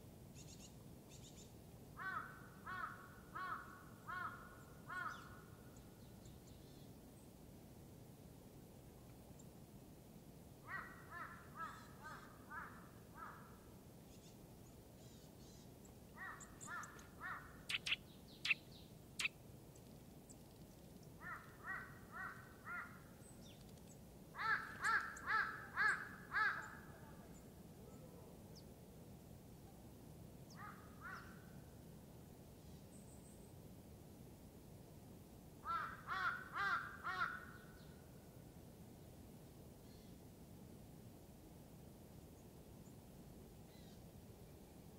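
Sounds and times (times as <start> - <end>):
bird calling: 15.0 - 19.4.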